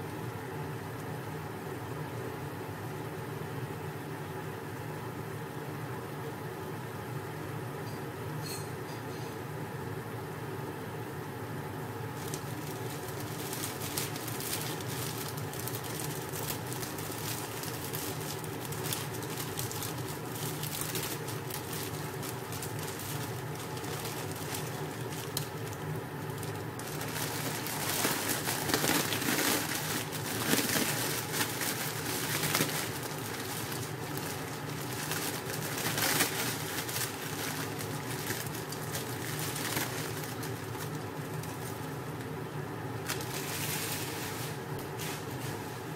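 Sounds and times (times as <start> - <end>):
handling noises: 12.2 - 41.9.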